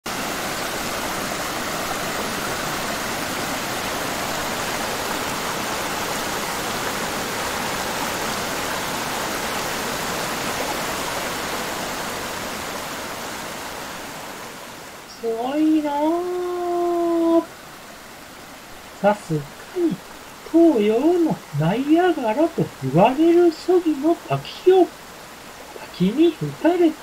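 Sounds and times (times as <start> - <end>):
waterfall roaring: 0.1 - 27.0.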